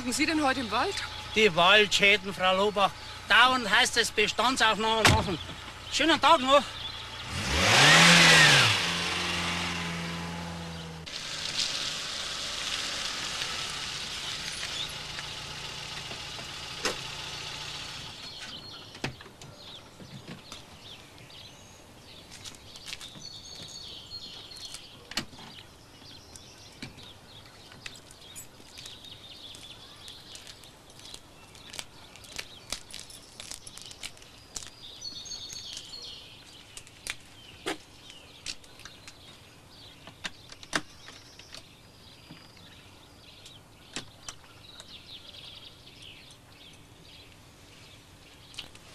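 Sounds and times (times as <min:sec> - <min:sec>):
car engine running: 0:00.0 - 0:18.5
birds chirping: 0:00.0 - 0:48.9.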